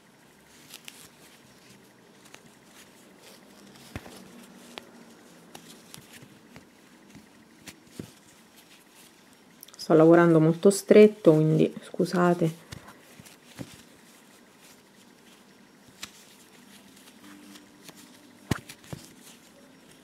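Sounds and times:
yarn and crochet hook rustling: 0.0 - 20.0.

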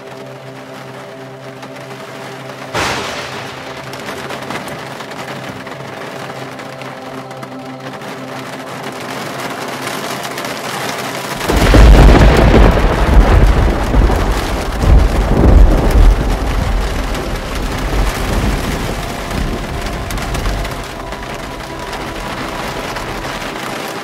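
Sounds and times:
heavy rain hissing: 0.0 - 24.0
thunder rumbling: 2.4 - 24.0.

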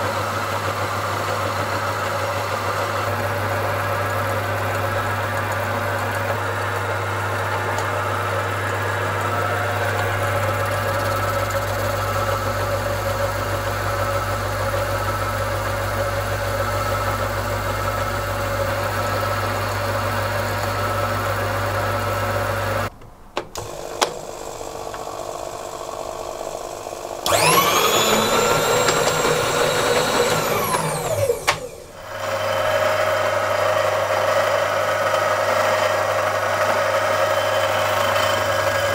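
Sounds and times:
metal lathe running: 0.6 - 22.9, 23.6 - 38.9
motor whine: 2.8 - 22.9, 23.6 - 38.9
clicks: 22.9 - 25.2, 27.2 - 31.8.

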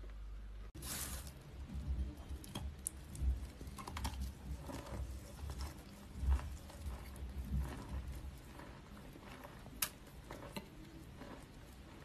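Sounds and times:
chewing crunchy chalk: 2.4 - 12.0.

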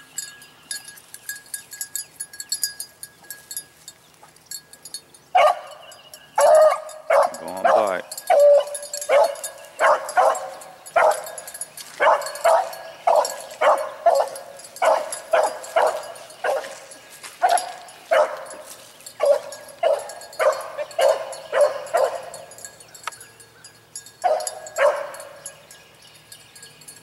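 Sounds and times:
hound barking: 5.3 - 5.8, 6.4 - 22.6, 24.2 - 25.5.

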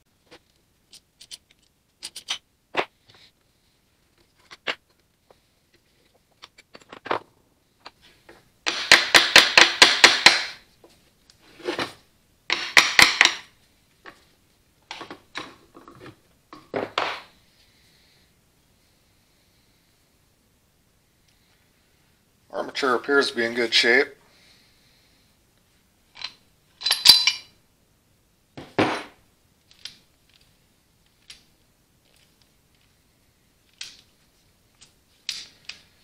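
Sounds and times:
parts being handled: 0.2 - 17.4, 26.1 - 27.6, 28.6 - 36.0.

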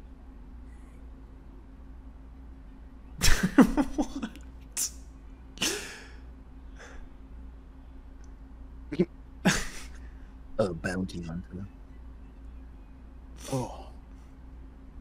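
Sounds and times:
man laughing: 3.2 - 4.4, 9.4 - 10.0.

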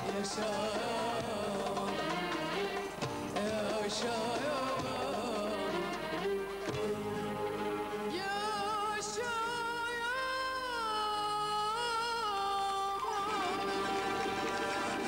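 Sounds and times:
instrumental backing: 0.0 - 10.4
person singing long notes: 0.0 - 15.0.

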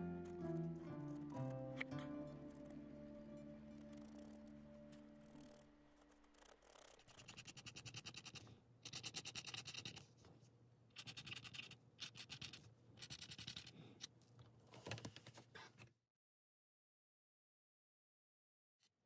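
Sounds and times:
stylus scratching on paper: 3.7 - 10.2, 11.0 - 13.8.

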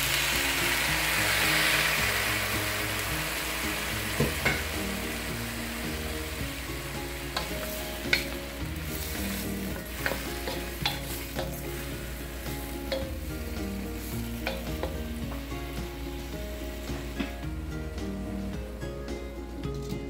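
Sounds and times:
mushrooms sizzling in a pan: 0.0 - 19.9
wooden spatula scraping a pan: 7.1 - 17.5.

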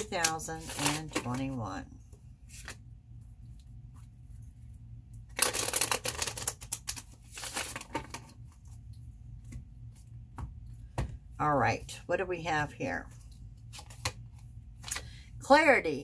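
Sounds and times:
faint low hum: 0.0 - 16.0
cards being shuffled: 5.4 - 8.4, 13.7 - 14.2.

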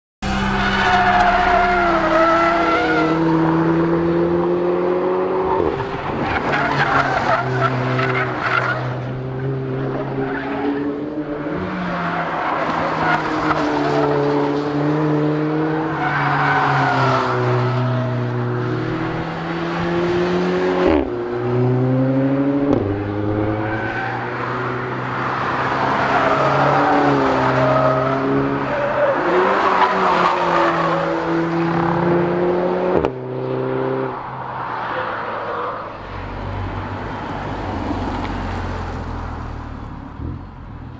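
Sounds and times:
car engine accelerating hard: 0.2 - 6.4.

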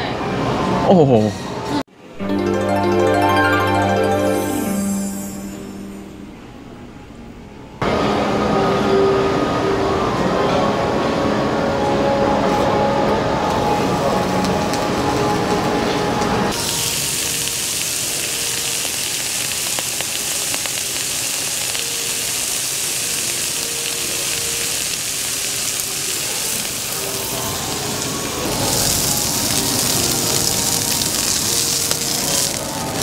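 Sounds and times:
beef sizzling in a hot pan: 16.5 - 33.0.

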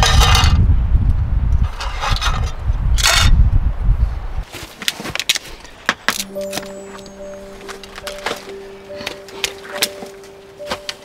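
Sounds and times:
low rumble on microphone: 0.0 - 4.4.

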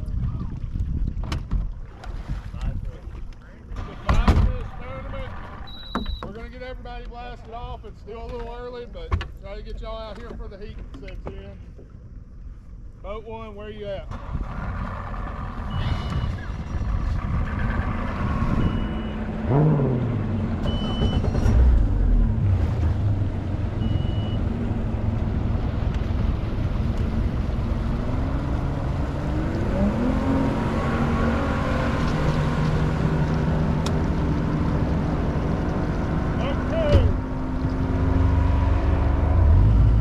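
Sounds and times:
water noise: 0.0 - 6.5, 14.2 - 40.0
wind: 0.0 - 40.0
short high beeps: 5.7 - 6.3.

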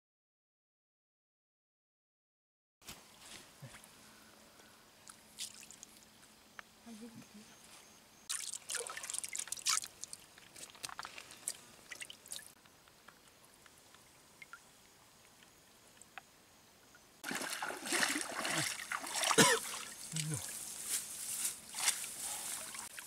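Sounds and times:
water trickling and splashing: 5.4 - 6.1, 8.3 - 12.6, 17.2 - 20.7, 21.6 - 23.0.

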